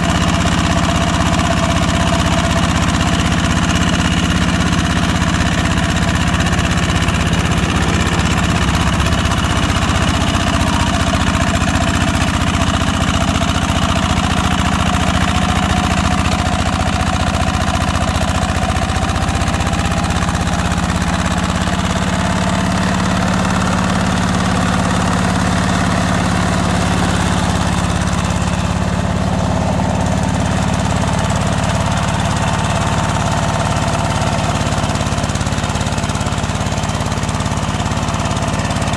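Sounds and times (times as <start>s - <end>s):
diesel engine running: 0.0s - 38.9s.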